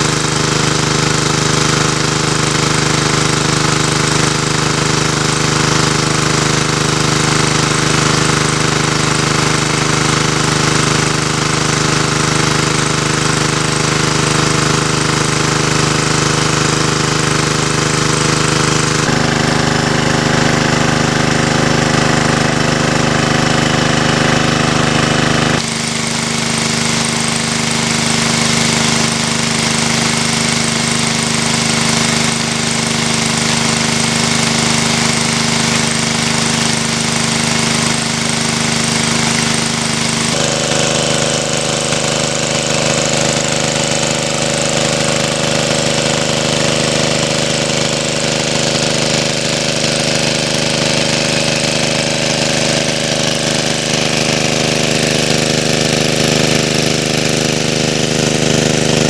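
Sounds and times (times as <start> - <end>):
water gushing from hose: 0.0 - 59.0
water pump engine running: 0.0 - 59.0.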